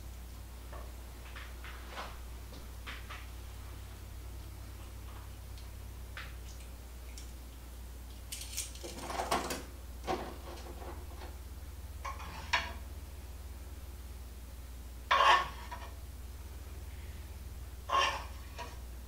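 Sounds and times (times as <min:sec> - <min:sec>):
steady low hum: 0:00.0 - 0:19.0
utensil scraping a skillet: 0:12.0 - 0:12.8, 0:15.1 - 0:16.0, 0:16.9 - 0:18.9.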